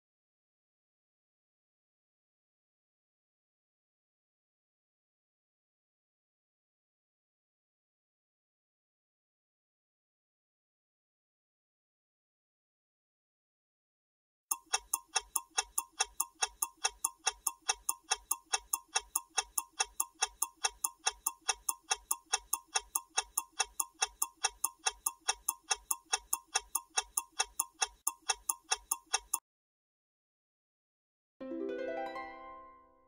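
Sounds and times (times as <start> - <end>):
countdown timer ticking: 14.5 - 29.4.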